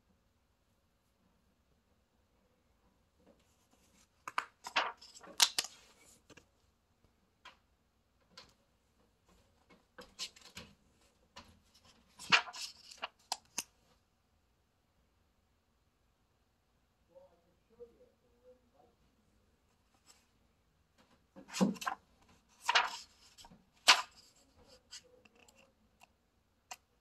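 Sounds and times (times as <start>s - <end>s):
book pages turning: 3.8s - 6.4s, 10.0s - 10.7s, 11.7s - 13.7s, 21.4s - 25.6s.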